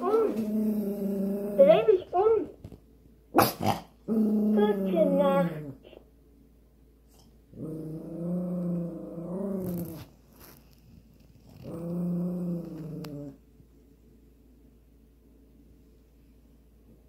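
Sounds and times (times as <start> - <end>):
dog growling low: 0.0 - 1.8, 3.4 - 6.0, 7.1 - 10.1, 11.4 - 13.4.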